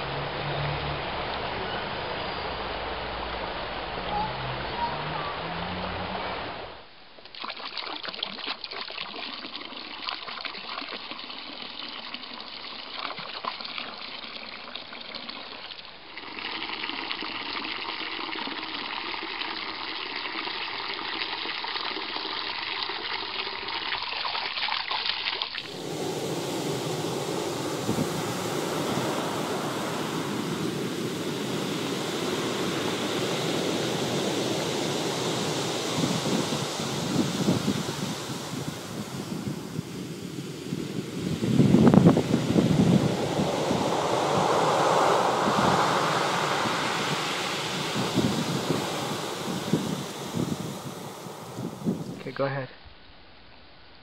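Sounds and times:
wind: 0.0s - 54.0s
running water: 1.1s - 52.5s
water splashing into stone basin: 7.2s - 14.2s
surf breaking on pebble shore: 25.6s - 52.3s.

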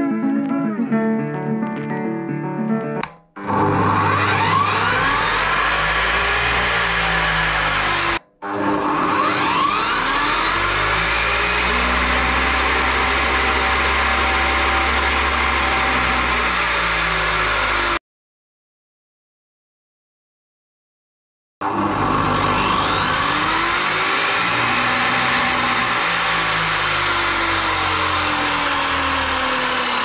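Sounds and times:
cut-off saw motor whining: 3.4s - 18.0s, 21.6s - 30.0s.

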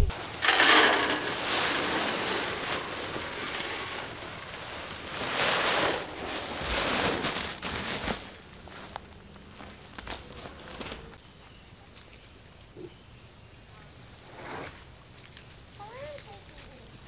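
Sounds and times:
feed pouring into wooden trough: 0.3s - 4.4s.

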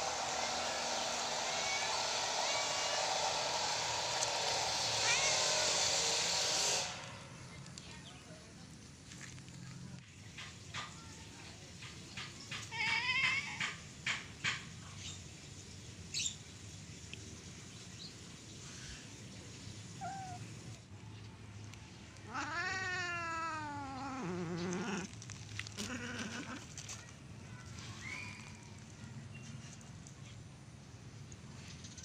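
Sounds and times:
faint short cat calls: 20.0s - 20.4s
cat meowing: 20.0s - 20.5s, 22.2s - 25.1s.

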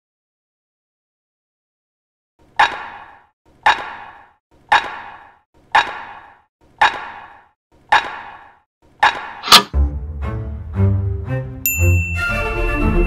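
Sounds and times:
clock ticking: 4.7s - 7.2s.

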